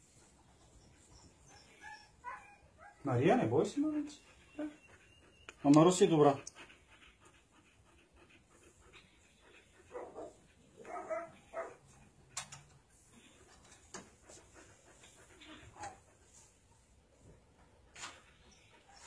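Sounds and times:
dog whimpering: 0:01.2 - 0:06.4.

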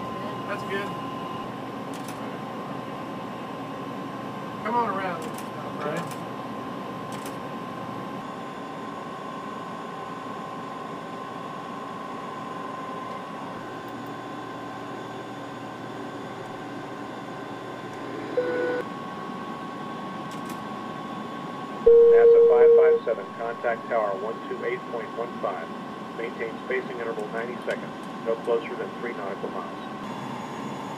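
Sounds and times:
aircraft cockpit hum: 0:00.0 - 0:30.9
faint steady whine: 0:00.0 - 0:30.9
short beep: 0:21.9 - 0:23.1.

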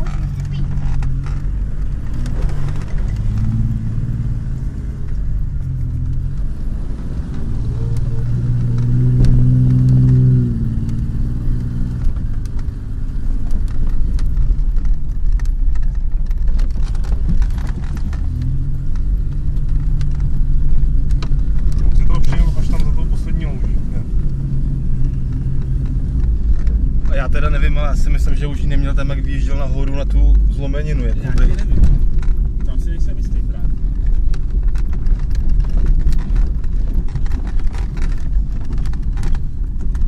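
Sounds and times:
body and suspension rattling: 0:00.0 - 0:40.0
car engine revving: 0:00.0 - 0:40.0.

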